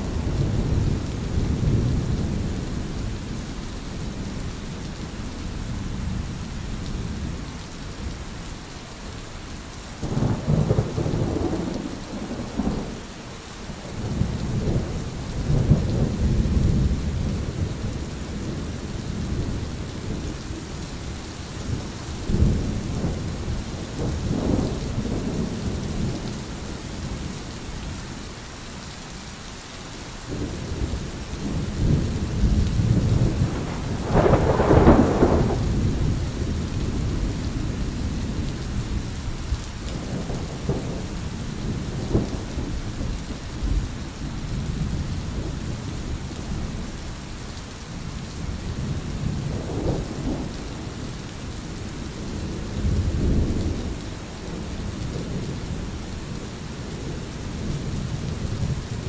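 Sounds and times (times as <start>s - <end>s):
steady rain: 0.0s - 59.0s
thunder rolling: 31.4s - 39.0s.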